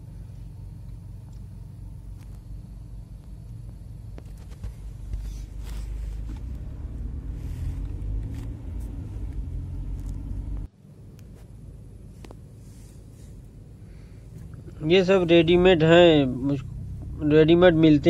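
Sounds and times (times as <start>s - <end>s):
car rumble from inside cabin: 0.0s - 18.0s.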